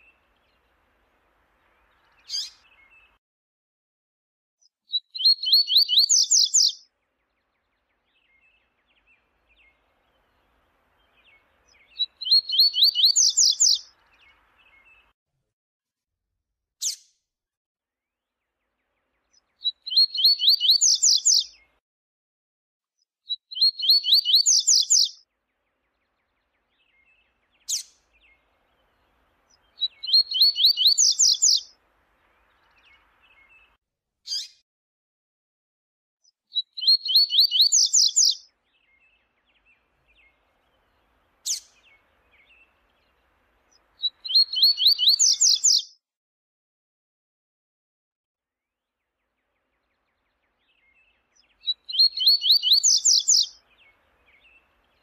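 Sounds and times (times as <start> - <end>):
seedeater bird singing: 1.7 - 3.2, 4.9 - 15.1, 19.4 - 21.6, 23.3 - 25.2, 25.9 - 31.8, 36.5 - 45.9, 49.4 - 55.0.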